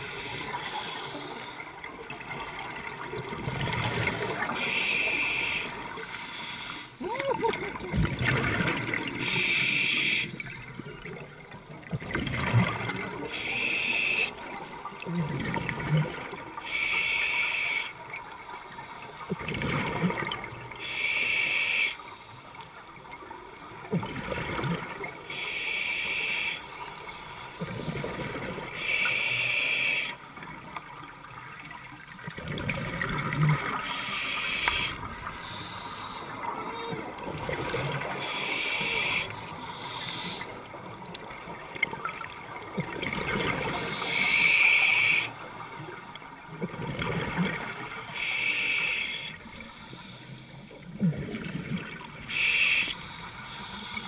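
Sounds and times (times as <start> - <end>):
regulator inhalation hiss: 4.6 - 7.0, 9.2 - 10.4, 13.3 - 14.3, 16.7 - 17.9, 20.8 - 22.3, 25.3 - 26.7, 28.8 - 30.2, 33.8 - 36.4, 38.2 - 40.5, 43.8 - 45.3, 48.2 - 50.7, 52.3 - 54.0
exhaled air bubbling: 7.0 - 14.4, 32.2 - 34.0.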